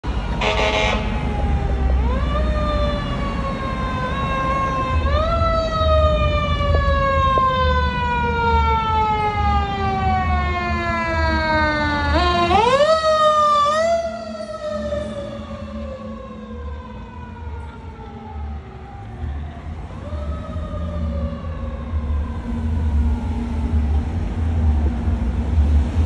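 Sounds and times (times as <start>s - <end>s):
low engine rumble: 0.0s - 26.0s
fire engine siren wailing: 0.1s - 26.0s.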